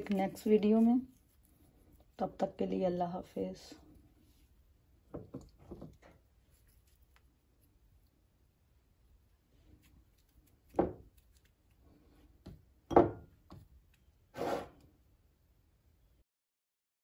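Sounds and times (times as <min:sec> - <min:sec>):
rubbing scrapes: 0:14.3 - 0:14.8.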